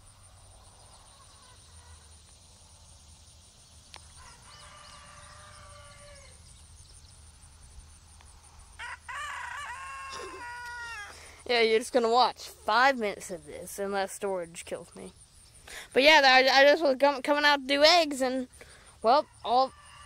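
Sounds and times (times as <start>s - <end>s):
roosters crowing: 4.0s - 6.5s, 8.7s - 11.4s, 19.2s - 20.0s.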